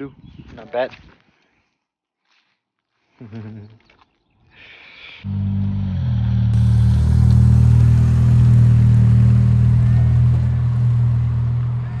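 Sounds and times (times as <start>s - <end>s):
car driving past: 5.3s - 12.0s.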